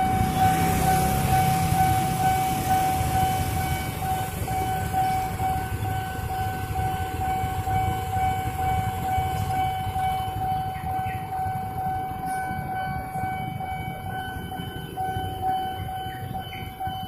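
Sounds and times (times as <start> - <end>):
level crossing warning bell: 0.0 - 17.0
motorcycles and traffic idling: 0.0 - 17.0.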